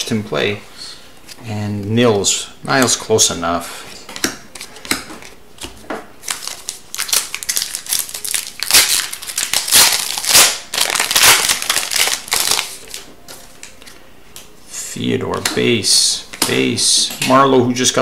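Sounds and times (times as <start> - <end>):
trading cards shuffling: 4.0 - 14.5
foil wrapper crinkling: 6.2 - 13.8.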